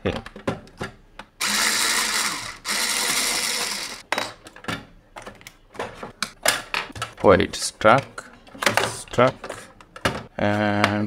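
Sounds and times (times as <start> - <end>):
cordless screwdriver running: 1.4 - 4.0.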